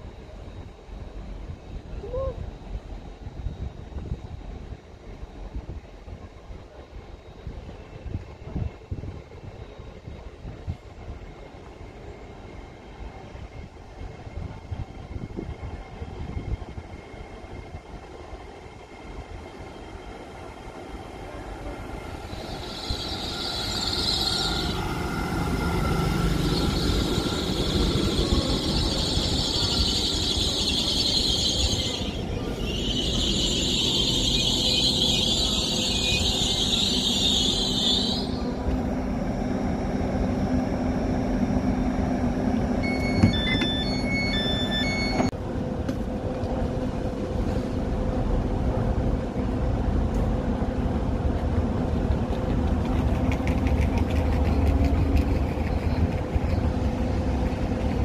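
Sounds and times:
low train rumble: 0:00.0 - 0:58.0
standing train humming: 0:00.0 - 0:58.0
train brakes squealing: 0:21.9 - 0:38.7, 0:42.8 - 0:45.3
door alert beeping: 0:42.8 - 0:45.3.

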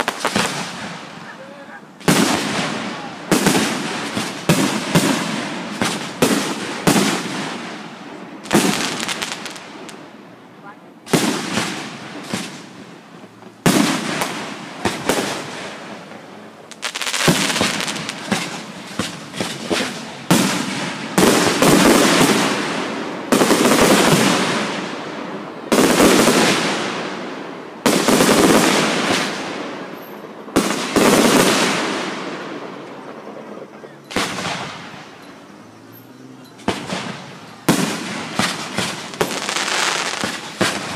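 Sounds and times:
fireworks bangs: 0:00.0 - 0:40.9
rapid crackling pops: 0:11.1 - 0:24.9, 0:36.6 - 0:40.9.

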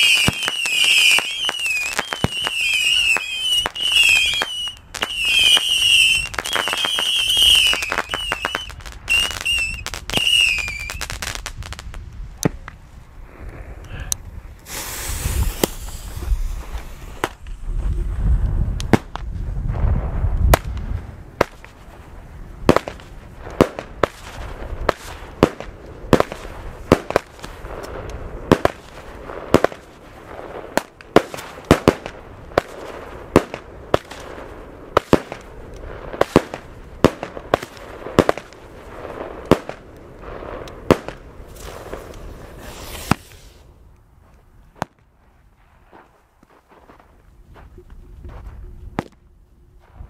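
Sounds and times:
fireworks banging: 0:00.0 - 0:12.8, 0:14.6 - 0:18.1, 0:18.8 - 0:43.6
fireworks crackling: 0:00.0 - 0:47.0
rising hiss: 0:13.2 - 0:18.4, 0:41.5 - 0:43.8.

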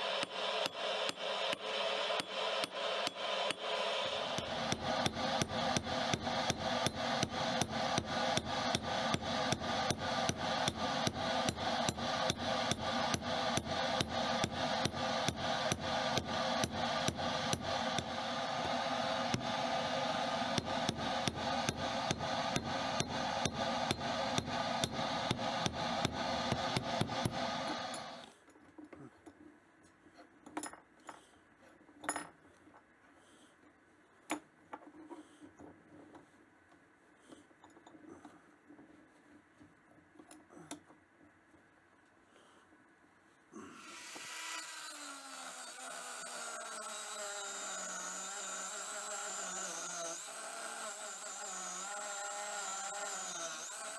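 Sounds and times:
hammer striking hot steel: 0:00.0 - 0:28.2.

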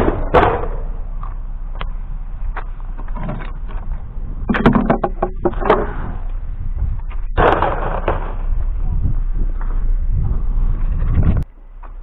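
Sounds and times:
vehicle engine humming: 0:00.0 - 0:12.0
clattering knocks: 0:04.4 - 0:06.2.

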